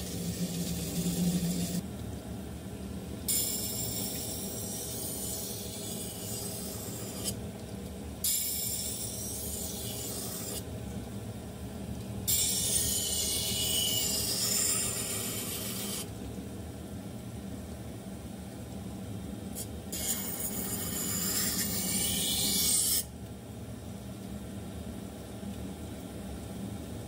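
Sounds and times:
whetstone motor hum: 0.0 - 1.8
knife grinding on whetstone: 12.3 - 16.0, 20.0 - 23.0.

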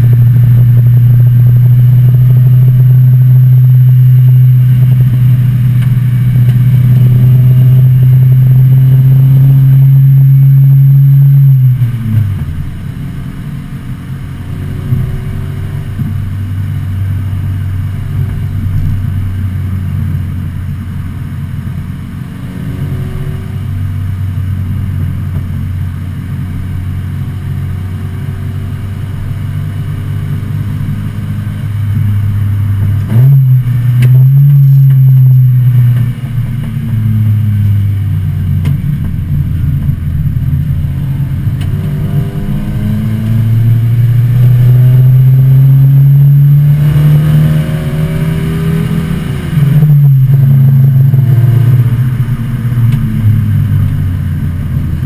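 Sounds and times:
race car engine from cabin: 0.0 - 55.0.

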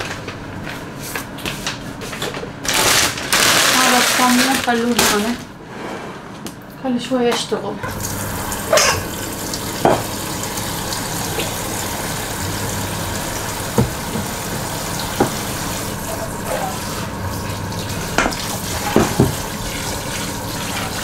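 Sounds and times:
tap running into sink: 7.9 - 21.0.

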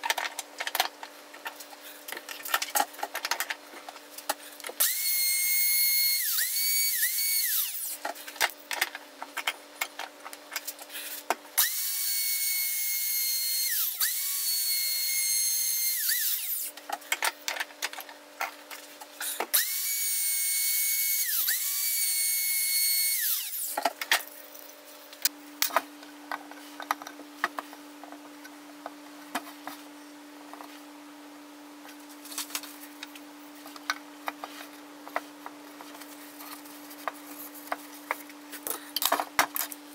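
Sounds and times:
power tool motor whining: 4.8 - 8.0
steady low hum: 23.8 - 39.9.

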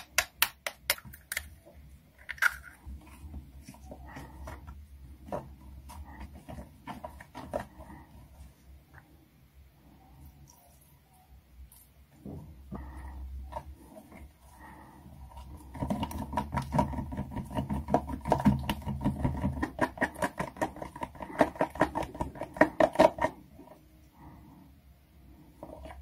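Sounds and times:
hand slapping thick batter: 0.0 - 1.4, 15.5 - 23.4.

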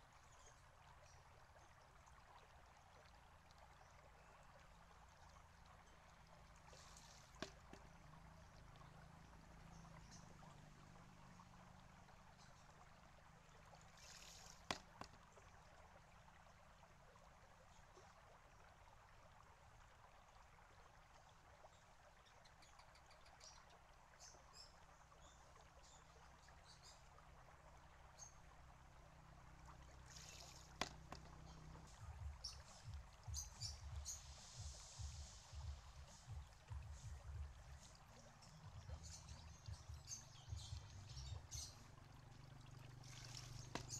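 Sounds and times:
faint water trickle: 0.0 - 43.9
water pouring out: 6.3 - 9.4, 13.7 - 15.5, 29.7 - 33.1, 40.1 - 43.9
bamboo tube knocking on rock: 7.4 - 8.0, 14.6 - 15.2, 30.7 - 31.5, 43.7 - 43.9
low uneven rumbling: 29.1 - 43.9.

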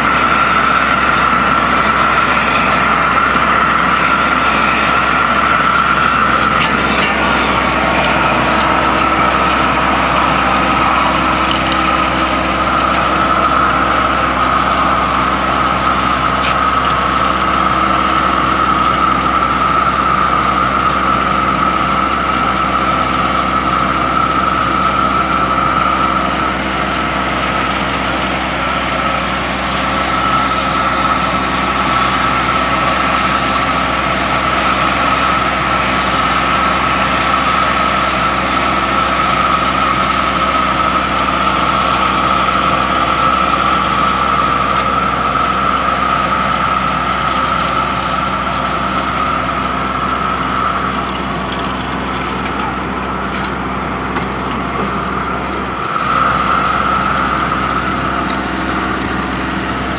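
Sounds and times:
engine drone: 0.0 - 59.9
high whine: 0.0 - 59.9.

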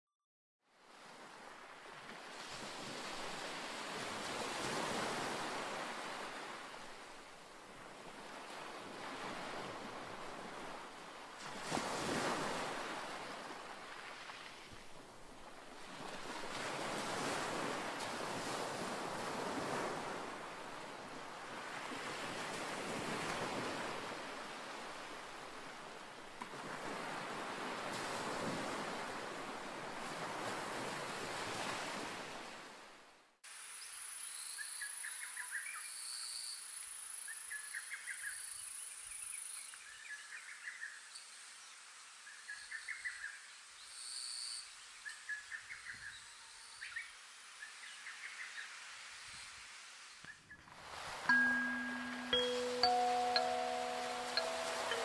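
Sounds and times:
waves breaking on rocks: 11.4 - 14.6.

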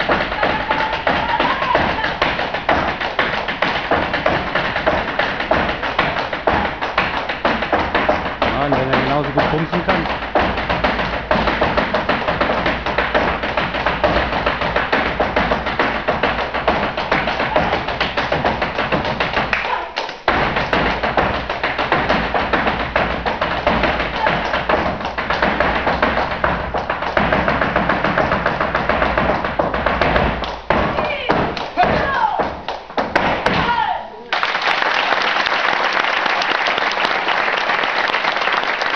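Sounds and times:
shoes stamping on wooden stage: 0.0 - 34.0.

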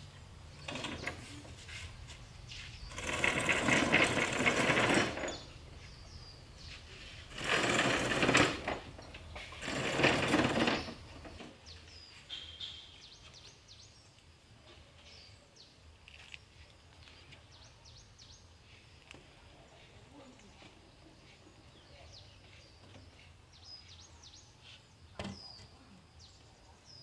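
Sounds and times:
birds chirping: 0.0 - 27.0.

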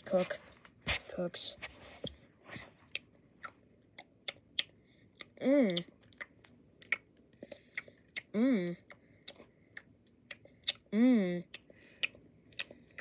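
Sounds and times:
mouth chewing and smacking: 2.6 - 13.0
person humming mmm: 8.2 - 8.9, 10.7 - 11.6.

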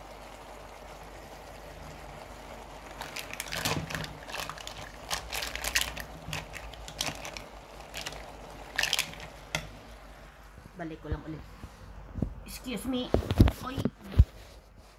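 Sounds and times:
sharp clicks and crackles: 3.0 - 9.7.

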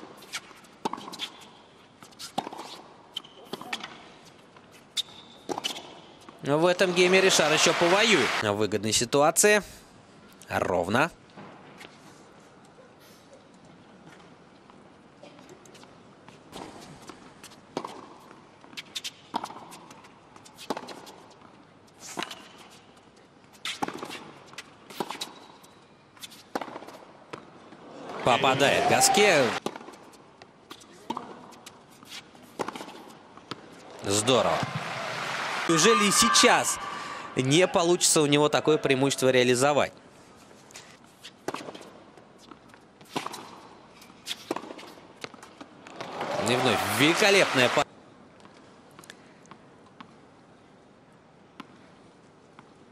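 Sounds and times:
tennis balls bouncing on hard court: 0.1 - 4.0, 16.5 - 21.5, 26.4 - 27.8, 28.6 - 31.6, 32.4 - 36.5, 41.4 - 47.8.

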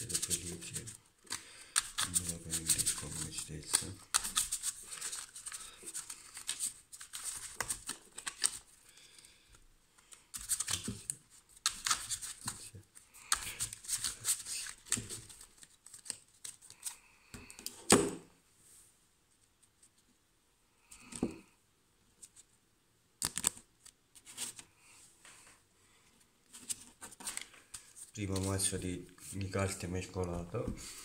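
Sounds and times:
cards being shuffled: 0.0 - 8.7, 10.0 - 17.8, 23.2 - 24.6, 26.5 - 29.5.

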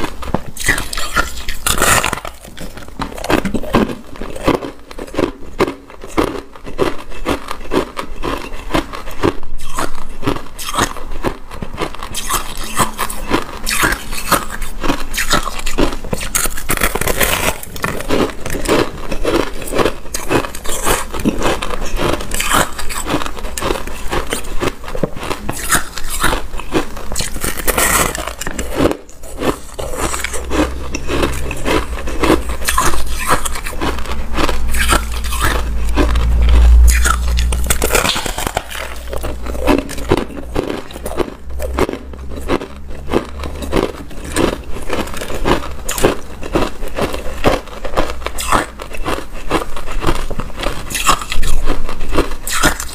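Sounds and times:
chewing crushed ice: 0.0 - 52.9.

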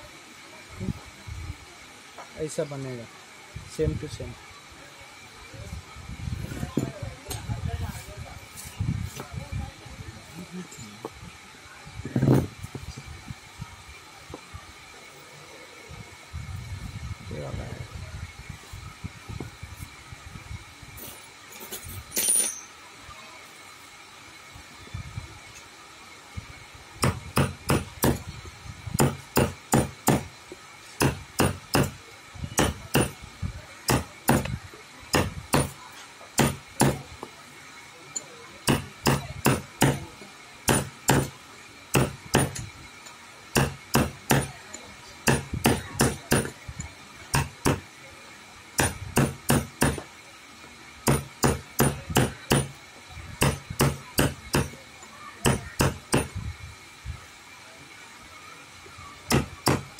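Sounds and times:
hammer striking: 27.0 - 28.2, 29.0 - 30.3, 31.0 - 32.0, 32.6 - 33.2, 33.9 - 34.5, 35.1 - 35.8, 36.4 - 37.0, 38.6 - 40.0, 40.7 - 41.3, 41.9 - 42.6, 43.5 - 44.6, 45.2 - 46.6, 47.3 - 47.8, 48.8 - 50.1, 51.0 - 52.8, 53.4 - 54.8, 55.4 - 56.3, 59.3 - 59.9.

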